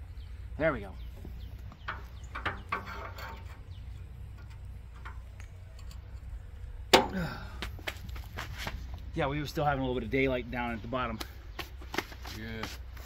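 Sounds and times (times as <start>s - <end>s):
steady low rumble: 0.0s - 11.5s
loud clunk of log on steel: 6.9s - 7.3s.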